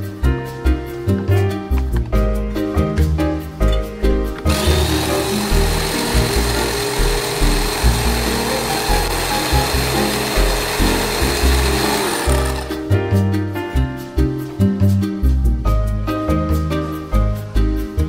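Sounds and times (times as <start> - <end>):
background music: 0.0 - 18.0
food chopper motor whine: 4.4 - 12.8.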